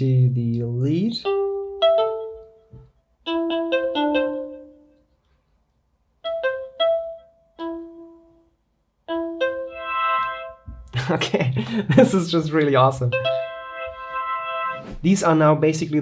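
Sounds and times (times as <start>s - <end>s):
synth melodic runs: 13.0s - 14.8s.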